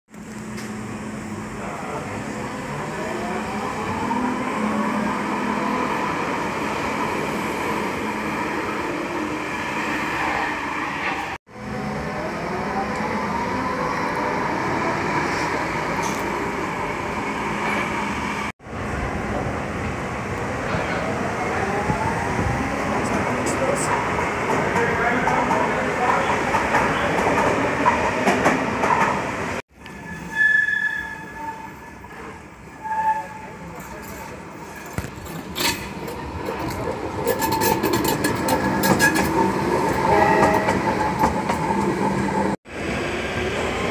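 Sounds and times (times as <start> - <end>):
train rumbling with wheel clicks: 21.9 - 29.2, 34.9 - 42.6
train wheel squeal: 29.8 - 33.7, 40.0 - 41.3.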